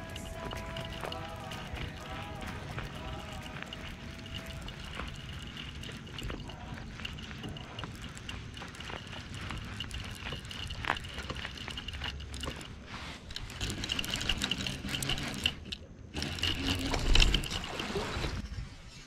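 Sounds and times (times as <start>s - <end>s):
fishing reel ticking whir: 0.0s - 18.4s.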